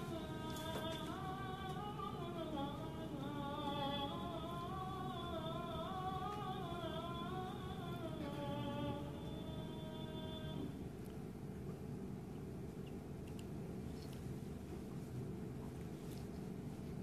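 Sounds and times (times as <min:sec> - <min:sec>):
music: 0:00.0 - 0:10.8
person singing long gliding notes: 0:00.0 - 0:10.8.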